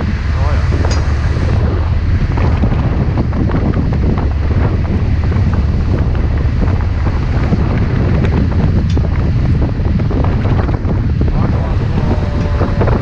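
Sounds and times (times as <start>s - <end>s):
low rumble of boat and sea: 0.0s - 13.0s
wind buffeting microphone: 0.0s - 13.0s.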